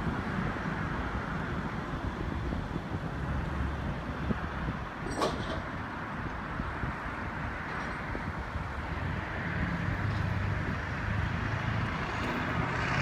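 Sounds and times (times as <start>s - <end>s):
road traffic noise: 0.0s - 13.0s.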